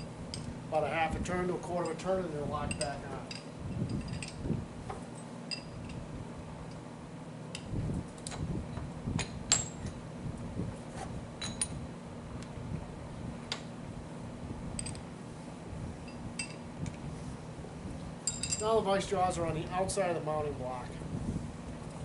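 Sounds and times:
steady low hum: 0.0s - 22.0s
metallic clinks and taps: 16.1s - 16.6s, 18.2s - 18.7s.

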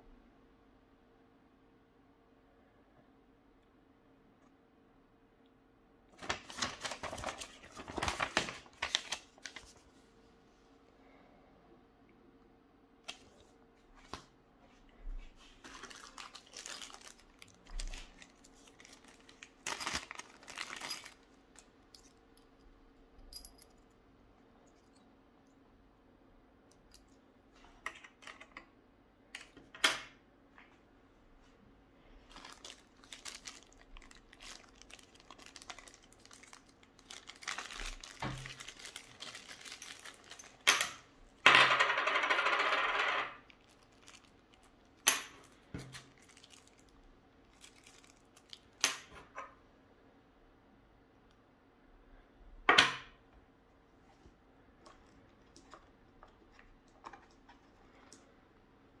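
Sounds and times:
plastic crinkling: 6.2s - 9.8s, 15.4s - 21.7s, 32.2s - 41.0s, 43.5s - 48.8s, 54.8s - 58.3s
plastic bags rustling: 6.2s - 9.9s, 15.4s - 21.7s, 32.1s - 41.0s, 43.5s - 48.8s.

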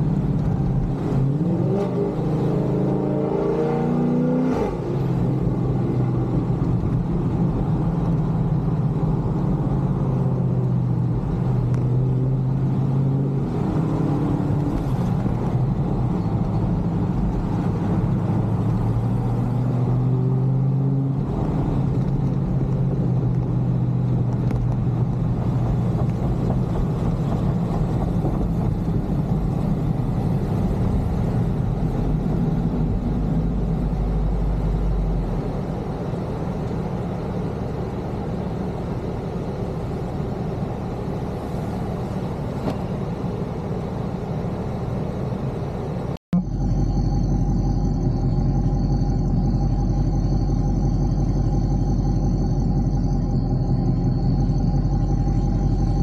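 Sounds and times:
car engine running: 4.9s - 56.0s.

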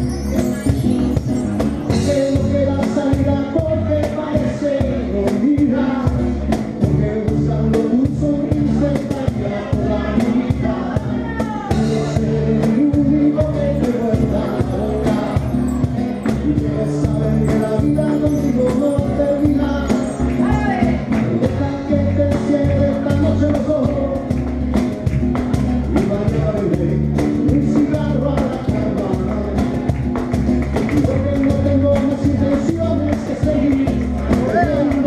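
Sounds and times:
bass guitar notes: 0.0s - 35.0s
guitar: 0.0s - 35.0s
cajon drum strikes: 20.5s - 35.0s.

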